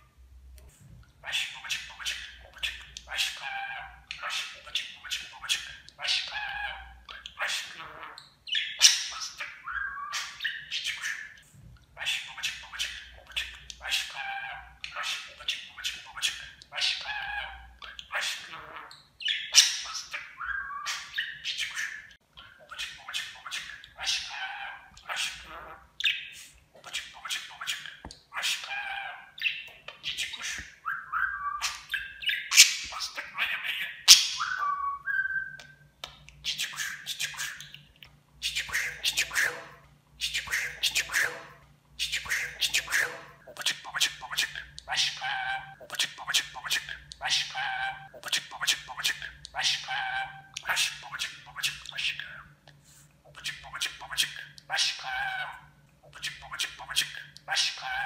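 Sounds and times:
budgerigar chattering: 12.0s - 26.3s
budgerigar whistles: 34.1s - 35.7s.

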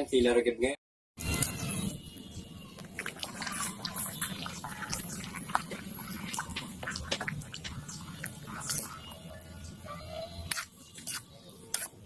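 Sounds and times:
liquid sloshing in a wok: 2.2s - 9.8s.

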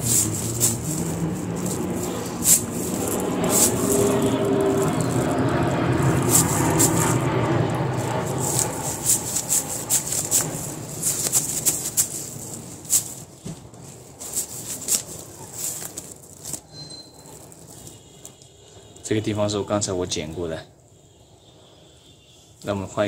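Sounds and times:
nylon scraping rough fruit skin: 0.0s - 18.4s
nylon crackling snaps: 0.0s - 18.5s.

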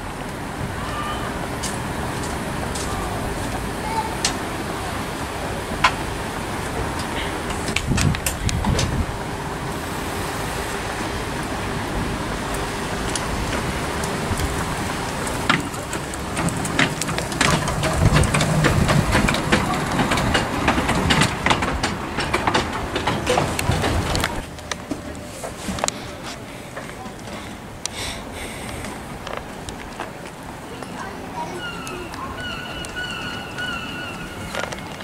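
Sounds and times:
miniature train rumbling: 0.0s - 35.0s
wheels clicking on track: 0.0s - 35.0s.

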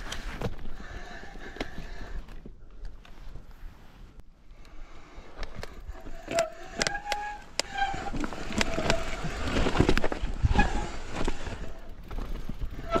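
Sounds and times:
bike rattling over stones: 5.7s - 13.0s
brakes squealing: 6.0s - 9.8s.

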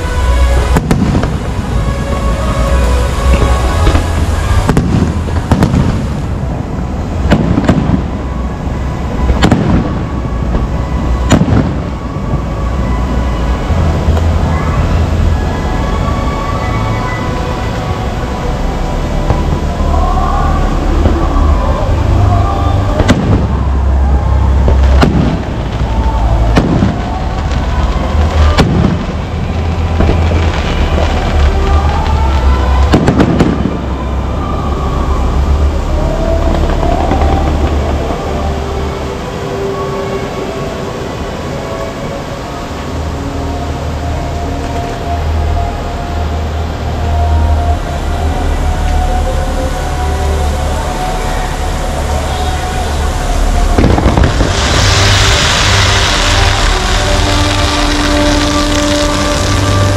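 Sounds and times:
fireworks banging: 0.0s - 16.2s, 19.2s - 34.6s, 36.0s - 40.2s, 51.2s - 59.9s
low rumble: 0.0s - 59.9s
music playing: 0.0s - 59.9s.

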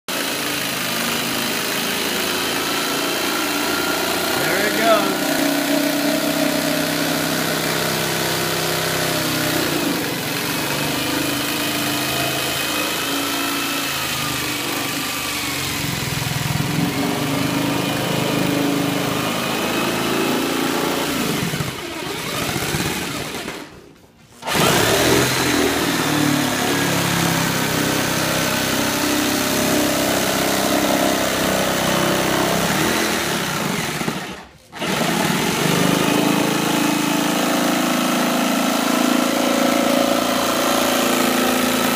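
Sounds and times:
electric saw cutting plastic: 0.1s - 23.8s, 24.4s - 41.9s.

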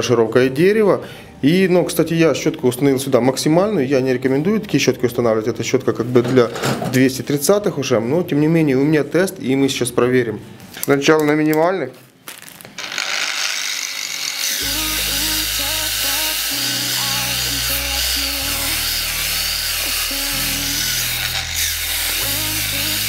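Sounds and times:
wire brush grinder on wood: 12.8s - 23.0s
background music with bassline: 14.6s - 23.0s.

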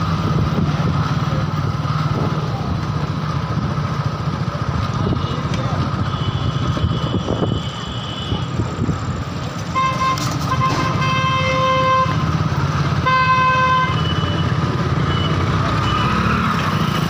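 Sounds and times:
vehicle engine running: 0.0s - 17.0s
vehicle horn blasts: 6.0s - 8.6s, 9.7s - 12.3s, 13.0s - 14.5s.

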